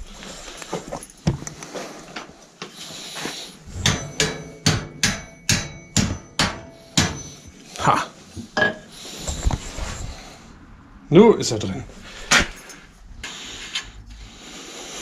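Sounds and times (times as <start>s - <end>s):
hammer striking metal bolt: 3.8s - 7.6s.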